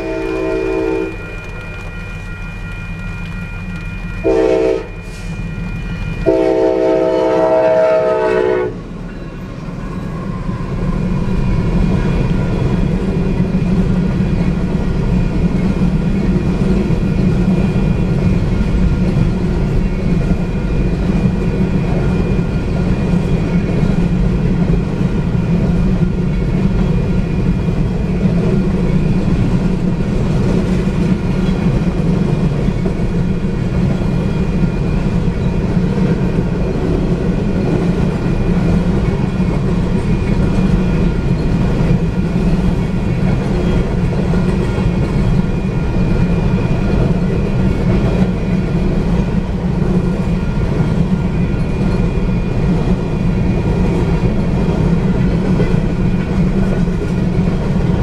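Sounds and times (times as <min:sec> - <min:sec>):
locomotive horn: 0:00.0 - 0:01.6, 0:04.2 - 0:05.4, 0:06.2 - 0:08.9
train rumble and rail clatter: 0:00.0 - 0:58.0.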